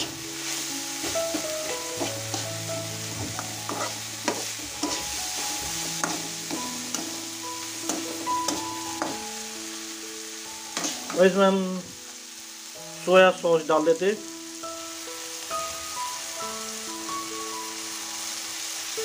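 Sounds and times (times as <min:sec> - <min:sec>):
faint background music: 0:00.0 - 0:16.2
oil sizzling: 0:00.0 - 0:19.0
metal spatula scraping a pan: 0:01.0 - 0:07.2, 0:10.7 - 0:11.3.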